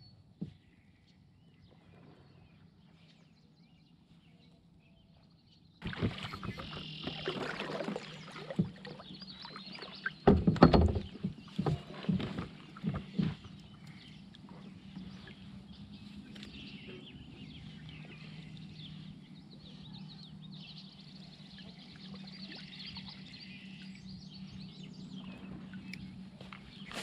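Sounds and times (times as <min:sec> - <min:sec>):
paddle knocks and clatter: 0:05.8 - 0:15.1
paddle splashing in water: 0:05.8 - 0:15.5.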